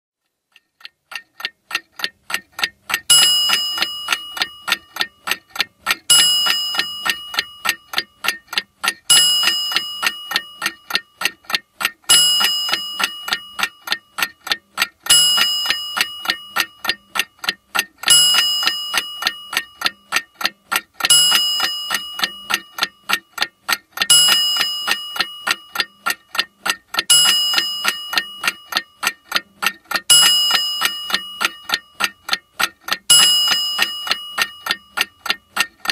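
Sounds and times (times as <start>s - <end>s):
clock ticking: 0.2s - 35.9s
ringing clock chime: 3.1s - 5.4s, 6.1s - 8.4s, 9.1s - 11.4s, 12.1s - 14.4s, 15.0s - 17.3s, 18.0s - 23.2s, 24.0s - 35.9s.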